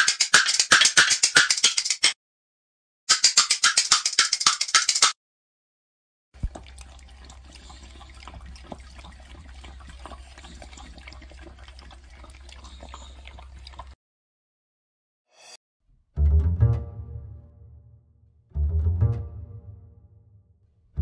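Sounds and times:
dog lapping from metal bowl: 6.4 - 14.0.

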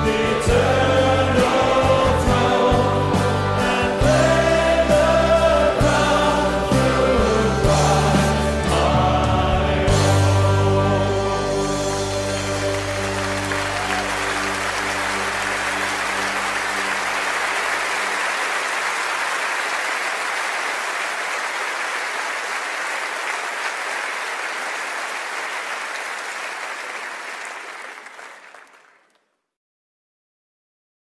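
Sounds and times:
hymn final chord: 2.4 - 18.8
audience applause: 11.8 - 29.3.

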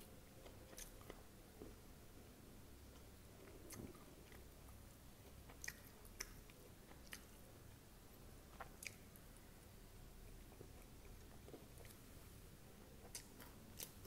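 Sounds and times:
close chewing of crunchy food: 0.4 - 1.8, 3.0 - 7.4, 13.0 - 14.0.

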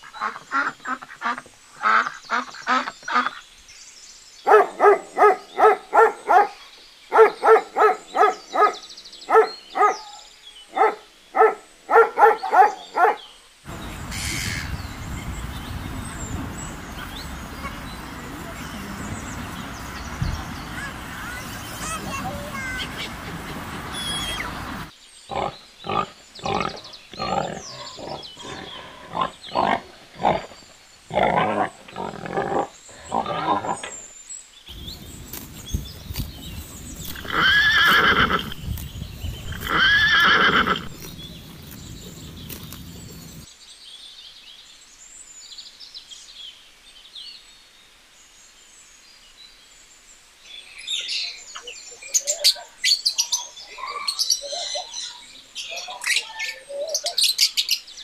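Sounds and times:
high bird chirps: 13.7 - 24.9, 34.7 - 43.5
horse neighing: 37.1 - 38.6, 39.4 - 42.3
piglet calls: 37.1 - 38.8, 39.4 - 41.9.

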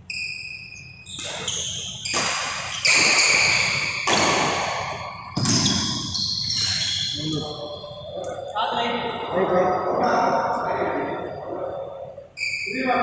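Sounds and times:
rackets striking shuttlecock: 0.8 - 6.9.

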